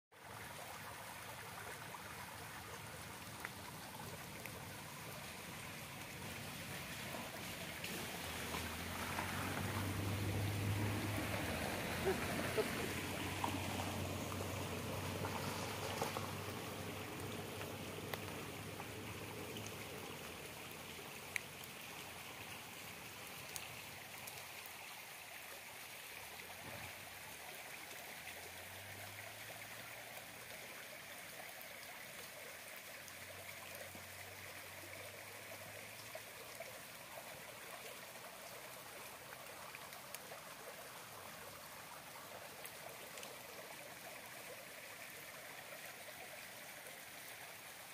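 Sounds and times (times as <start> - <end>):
stream flowing over gravel: 0.1 - 47.9.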